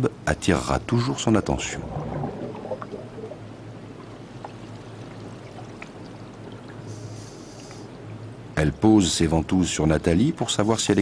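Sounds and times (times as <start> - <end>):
underwater watery wash: 1.0 - 8.5.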